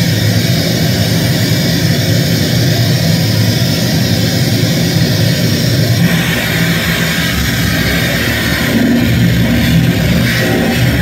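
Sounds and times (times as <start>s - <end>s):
harsh electronic noise music: 5.2s - 11.0s.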